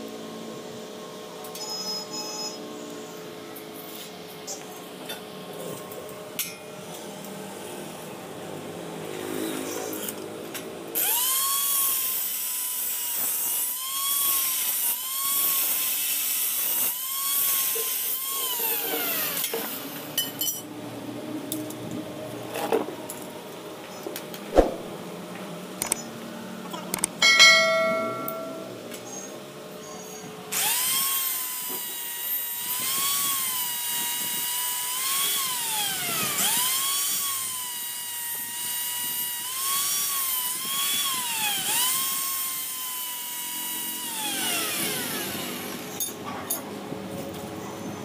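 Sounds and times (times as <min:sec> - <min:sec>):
angle grinder cutting metal: 0:11.0 - 0:20.2, 0:30.6 - 0:46.0
short loud chime: 0:27.2 - 0:28.8.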